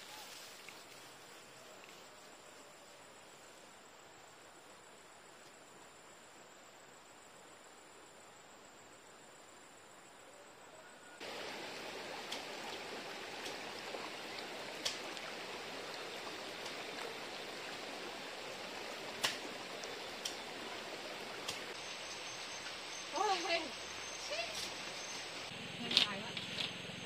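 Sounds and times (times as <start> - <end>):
faint hiss: 0.0 - 26.6
flowing water rushing: 11.2 - 25.5.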